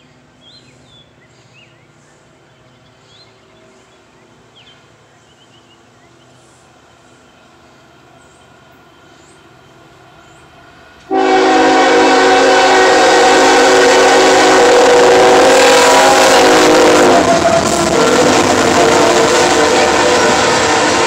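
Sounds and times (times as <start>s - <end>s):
freight train rumbling past: 0.0s - 21.0s
locomotive horn chord: 11.1s - 21.0s.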